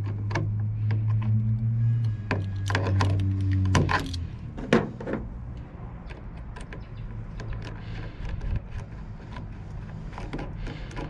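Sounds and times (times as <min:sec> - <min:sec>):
low hum: 0:00.0 - 0:07.3
metal tool clicks and scrapes: 0:02.0 - 0:04.4.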